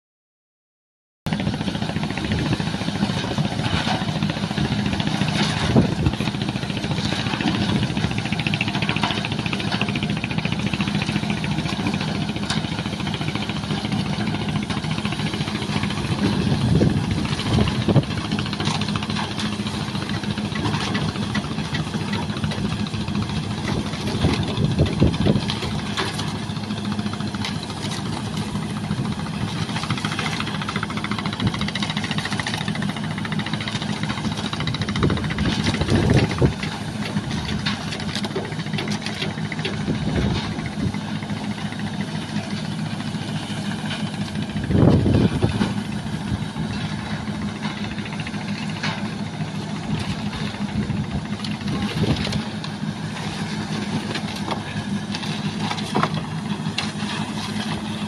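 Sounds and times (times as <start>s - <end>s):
pump engine running: 1.3s - 58.0s
knocks and clanks: 3.2s - 42.8s.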